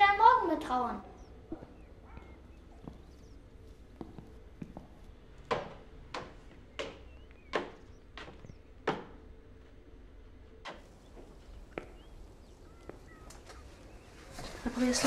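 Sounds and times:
even knocks: 5.4s - 9.3s.

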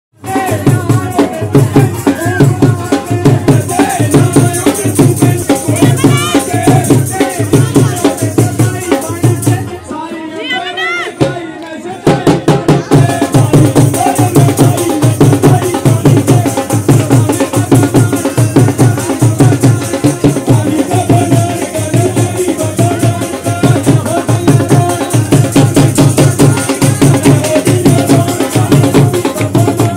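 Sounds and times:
dhol drum beating: 0.2s - 29.9s
person singing: 0.2s - 29.9s
hand clapping: 29.2s - 29.9s.

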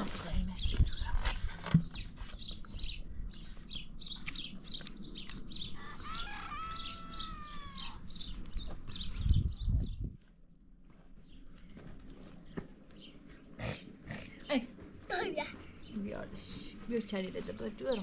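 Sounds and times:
birds chirping: 0.0s - 10.2s, 11.2s - 18.0s
drawn-out bird call: 5.6s - 8.4s.

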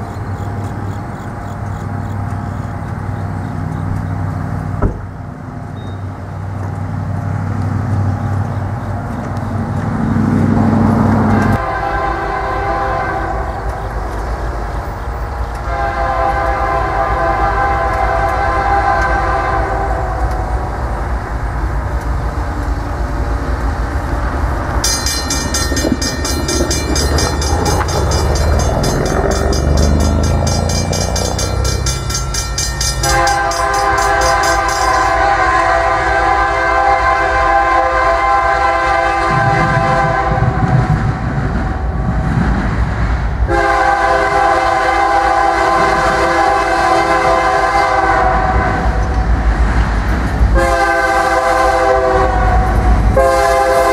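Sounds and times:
diesel engines rumbling: 0.0s - 53.9s
locomotive air horn blasts: 11.4s - 13.6s, 15.6s - 20.6s, 25.9s - 40.7s, 43.5s - 49.0s, 50.5s - 53.9s.

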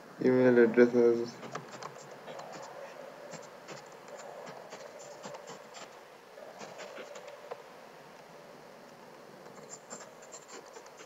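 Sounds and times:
faint steady hum: 0.0s - 11.0s
keyboard typing: 1.4s - 5.9s, 9.4s - 11.0s.

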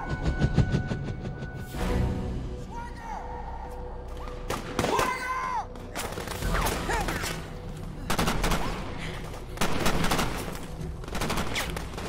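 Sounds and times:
rifle gunfire bursts: 8.1s - 12.0s.

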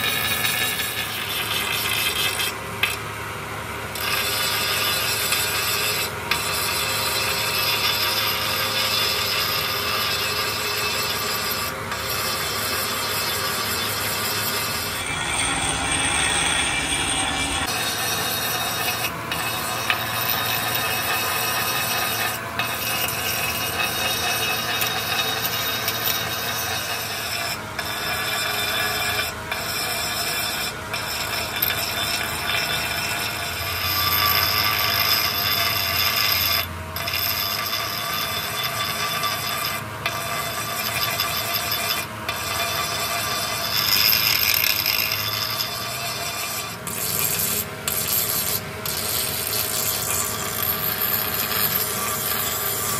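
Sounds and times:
grinding wheel grinding metal: 0.0s - 52.9s.

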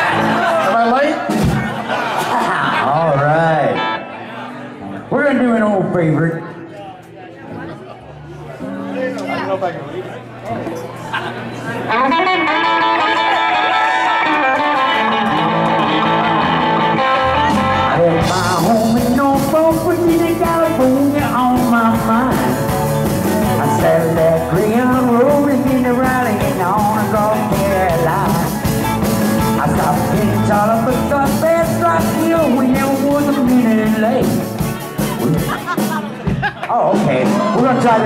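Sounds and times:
guitars playing: 0.0s - 38.0s
drums and cymbals: 17.5s - 37.7s
man singing into microphone: 17.9s - 22.7s, 23.4s - 28.6s, 29.6s - 34.5s.

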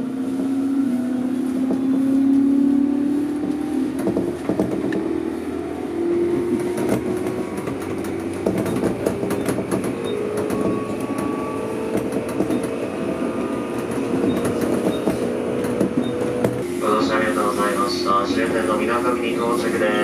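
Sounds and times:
train rumble: 0.0s - 20.0s
wheel clicks over rail joints: 6.4s - 16.6s.

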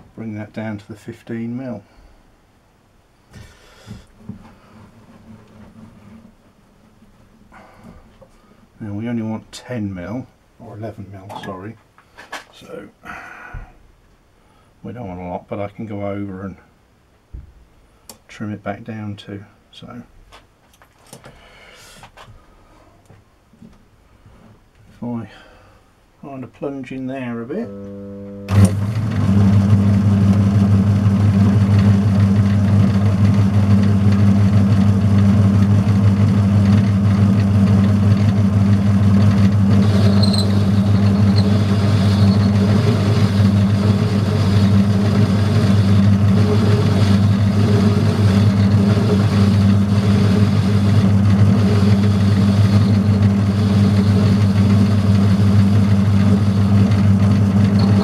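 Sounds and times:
faint high cutting tone: 27.5s - 28.7s
metal lathe motor hum: 27.6s - 58.0s.

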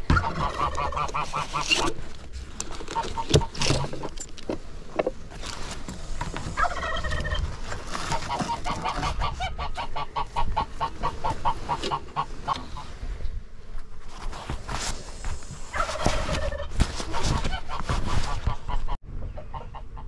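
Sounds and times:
fowl calling: 0.0s - 2.0s, 6.5s - 7.4s, 8.0s - 13.0s.

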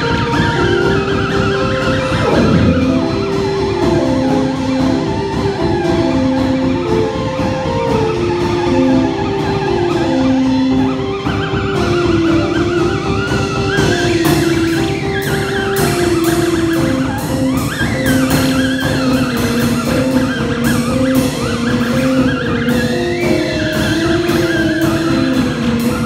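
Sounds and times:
theremin gliding tone: 1.5s - 6.1s
keyboard melody: 1.9s - 5.0s
drum kit beat: 2.0s - 4.9s.

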